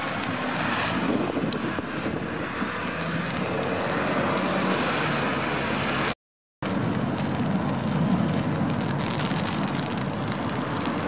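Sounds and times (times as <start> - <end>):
engine rumble: 0.0 - 11.0
tyres hissing on wet road: 0.0 - 11.0
wind buffeting microphone: 0.1 - 4.1.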